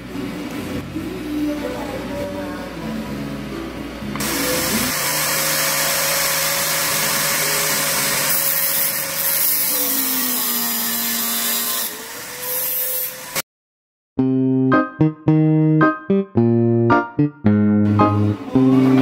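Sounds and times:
angle grinder cutting metal: 0:04.2 - 0:13.4.

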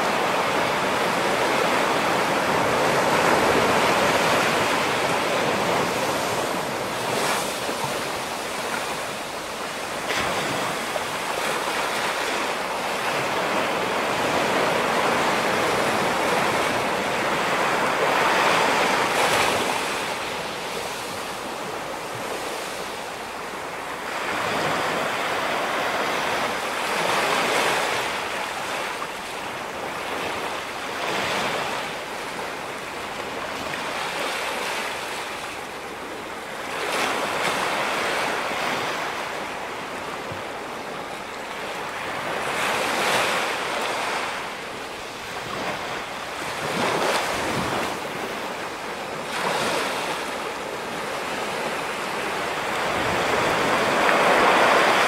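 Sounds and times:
ocean surf breaking: 0:00.0 - 0:55.0.

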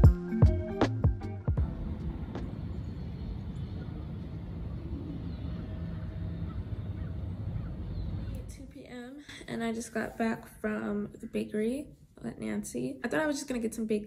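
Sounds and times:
vehicle traffic rumble: 0:01.6 - 0:08.8.

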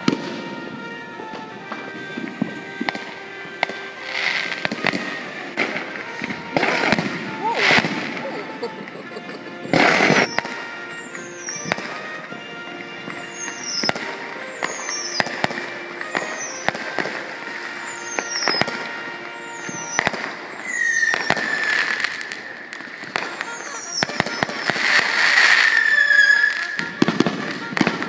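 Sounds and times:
fireworks bangs: 0:00.0 - 0:28.0
music: 0:00.0 - 0:28.0
crackling pops: 0:01.3 - 0:28.0
whistle-like tone: 0:10.1 - 0:12.0, 0:13.1 - 0:15.4, 0:16.2 - 0:16.8, 0:19.4 - 0:27.2
high falling whistles: 0:20.6 - 0:24.7, 0:25.6 - 0:26.8.

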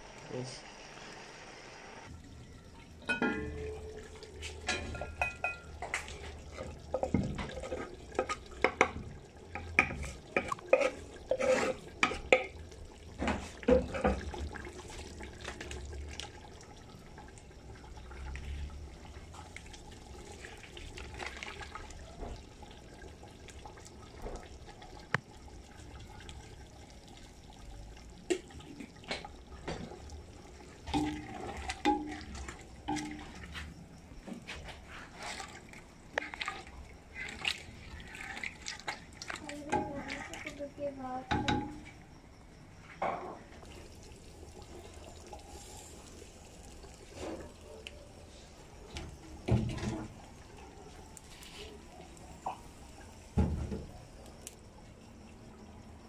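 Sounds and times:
running water: 0:00.0 - 0:42.8, 0:43.4 - 0:56.0
dishes and utensils clinking: 0:03.0 - 0:06.1.

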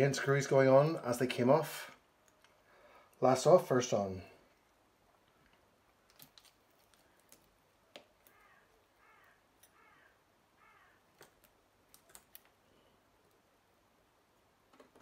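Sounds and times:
faint bird calls: 0:08.1 - 0:11.2.

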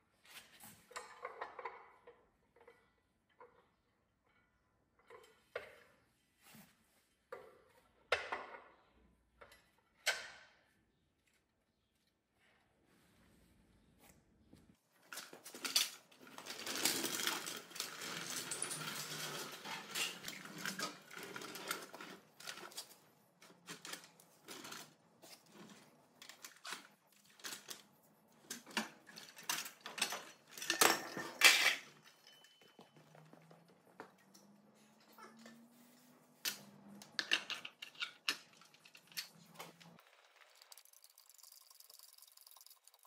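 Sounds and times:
metal tools clinking: 0:15.1 - 0:35.6.

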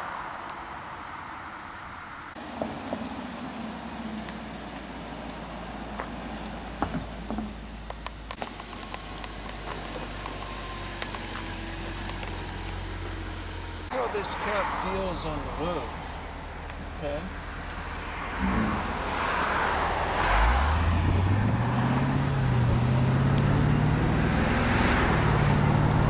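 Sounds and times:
car engine passing slowly: 0:00.0 - 0:26.0
road and wind hiss: 0:00.0 - 0:26.0
tyre noise: 0:04.3 - 0:14.1.

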